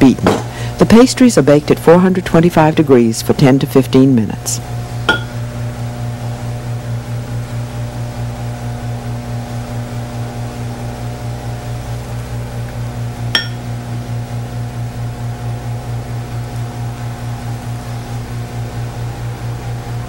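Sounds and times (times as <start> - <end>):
low pulsing hum: 0.6 - 7.2.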